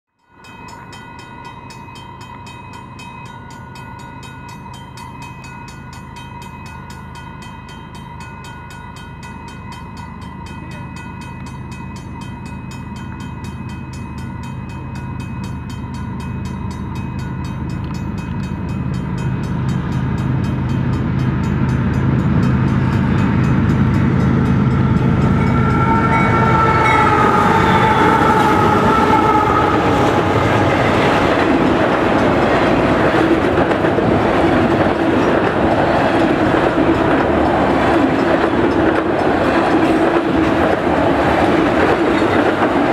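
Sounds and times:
level crossing bell ringing: 0.4s - 33.2s
diesel locomotive engine rumble: 8.1s - 42.9s.

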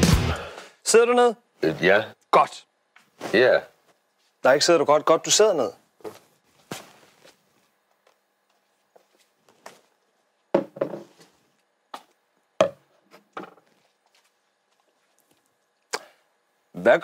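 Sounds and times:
mug and bottles knocking on desk: 10.5s - 11.2s, 12.6s - 13.6s.

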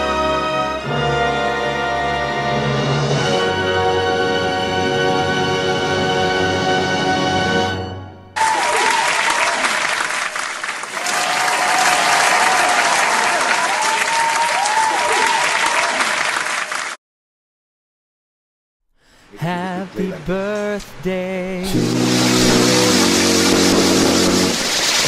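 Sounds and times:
crowd applauding: 8.4s - 17.0s, 21.7s - 25.0s.

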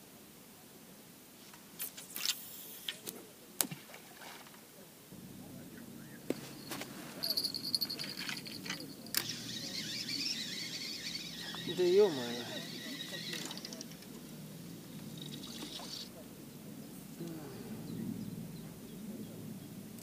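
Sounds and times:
fishing reel winding in line: 7.3s - 14.1s, 15.2s - 16.1s
fishing reel clicks: 8.4s - 14.1s.

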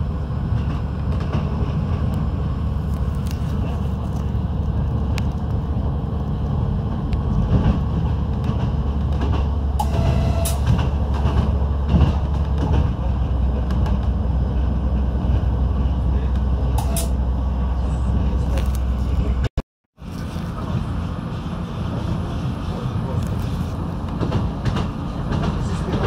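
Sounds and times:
railcar rumbling on track: 0.0s - 26.0s.

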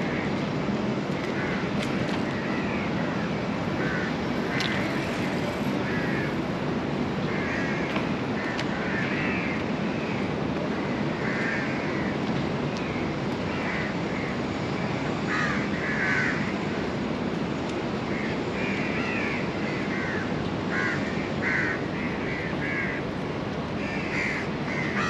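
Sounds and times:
city noise rumble: 0.0s - 25.0s
crows cawing: 1.3s - 1.7s, 2.3s - 6.4s, 7.3s - 12.1s, 13.5s - 14.3s, 15.3s - 16.5s, 18.1s - 23.1s, 23.8s - 25.0s.

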